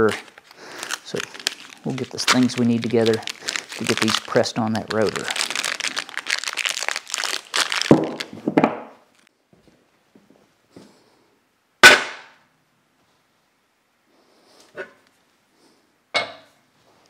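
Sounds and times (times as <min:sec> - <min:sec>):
cardboard crinkling and rustling: 0:00.0 - 0:08.5.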